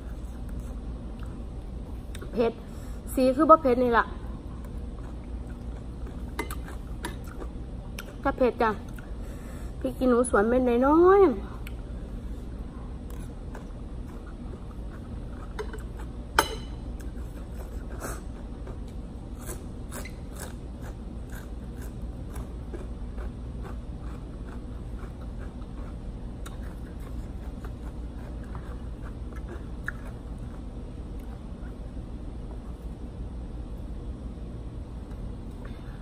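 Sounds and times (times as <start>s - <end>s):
person chewing crunchy food: 4.6s - 8.2s, 13.0s - 16.2s, 16.9s - 31.8s.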